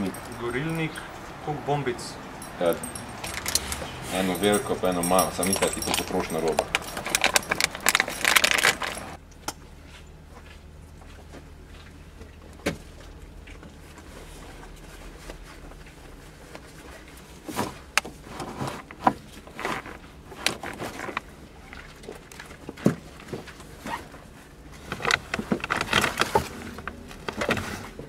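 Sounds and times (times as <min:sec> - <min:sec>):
items rattling in a bag: 0:00.0 - 0:01.0, 0:02.4 - 0:09.2, 0:14.2 - 0:28.0
rustling and clatter: 0:02.4 - 0:09.2, 0:09.8 - 0:28.0.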